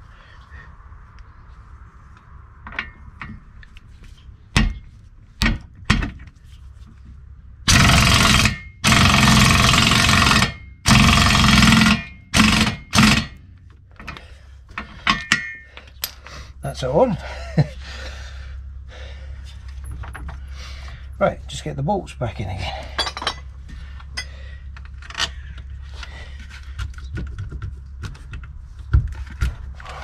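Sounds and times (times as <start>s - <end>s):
impact wrench hammering: 7.7s - 13.4s, 15.0s - 15.7s.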